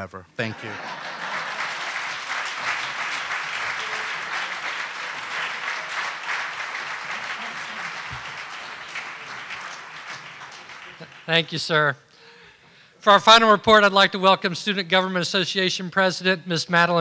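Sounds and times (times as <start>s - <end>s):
audience applauding: 0.4s - 11.8s.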